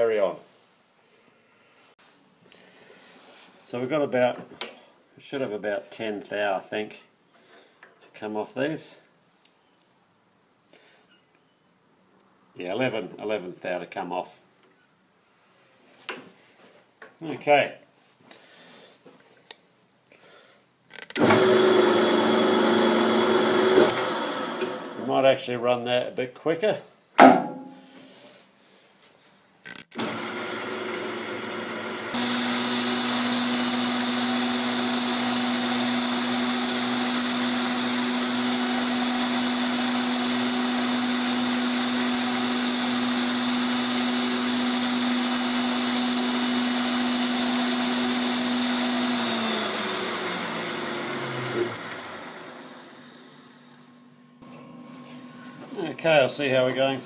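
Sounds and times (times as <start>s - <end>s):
grinder high whine: 21.2s - 25.1s, 30.0s - 55.8s
quieter machine running: 47.0s - 56.0s.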